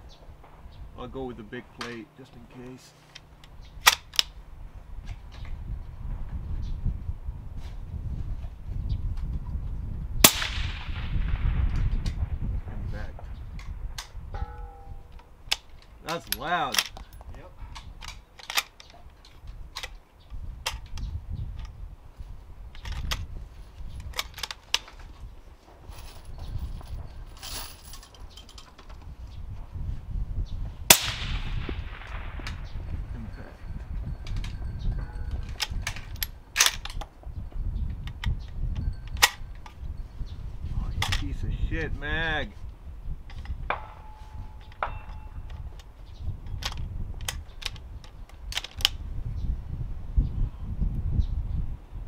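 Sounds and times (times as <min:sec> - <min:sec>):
wind rumble on microphone: 0:00.0 - 0:01.8, 0:03.3 - 0:52.0
rifle bolt metallic clicks: 0:03.1 - 0:04.4, 0:13.6 - 0:20.0, 0:35.4 - 0:37.1, 0:46.5 - 0:49.0
suppressed rifle shot with echo: 0:10.2 - 0:12.4, 0:30.9 - 0:32.8.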